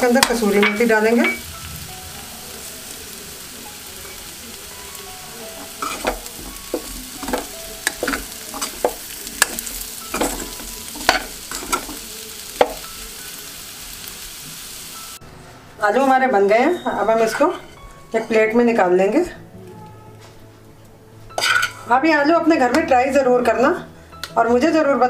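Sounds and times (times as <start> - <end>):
potatoes sizzling in oil: 0.0 - 15.2
metal spoon scraping pan: 5.6 - 12.0, 21.4 - 21.9.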